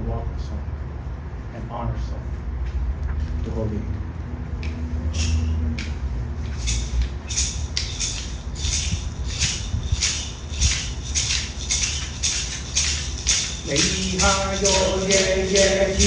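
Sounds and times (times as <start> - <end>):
wooden clapper rattles clacking: 6.6 - 16.0.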